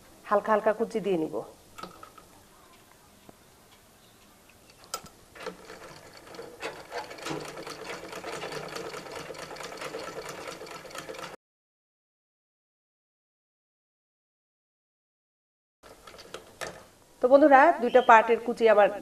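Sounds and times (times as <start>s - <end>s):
sewing machine clicking: 4.9s - 11.4s, 15.8s - 17.0s.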